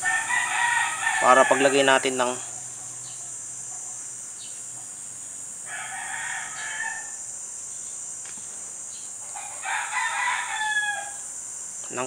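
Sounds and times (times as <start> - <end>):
rooster crowing: 0.0 - 3.1, 5.6 - 7.3, 9.2 - 11.3.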